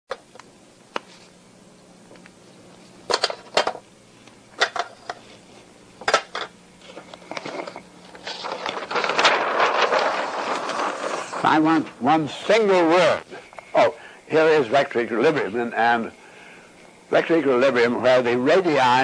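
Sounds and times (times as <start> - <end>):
paper rustling: 6.8 - 12.1.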